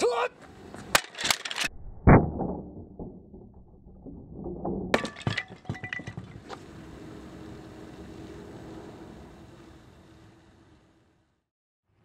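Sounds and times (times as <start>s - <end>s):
broken wood pieces clattering: 2.5s - 6.4s.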